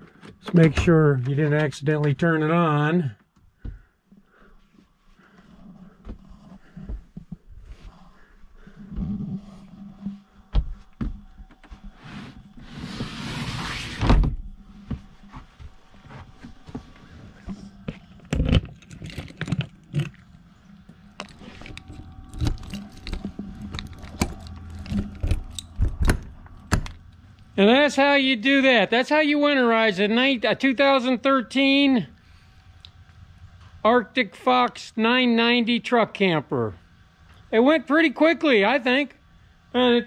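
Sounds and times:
objects knocking and clunking: 16.4s - 20.3s, 21.0s - 27.1s.

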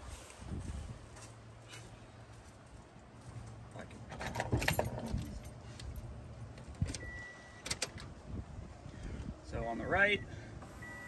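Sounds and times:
rattling and clicks of handling: 4.1s - 7.0s
short electronic beep: 10.8s - 11.0s.

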